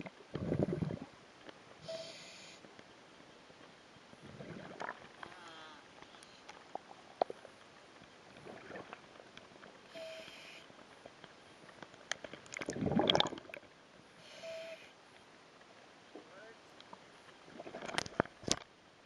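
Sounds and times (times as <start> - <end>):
gurgling splash: 0.0 - 1.1, 4.2 - 5.2, 12.5 - 13.6.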